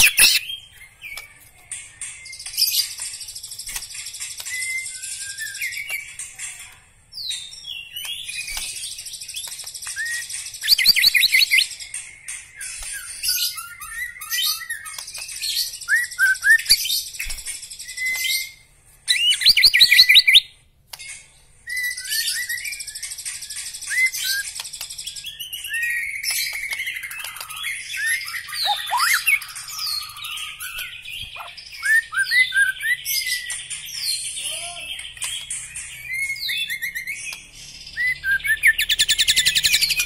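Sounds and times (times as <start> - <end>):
songbird singing trills: 23.8 - 40.0.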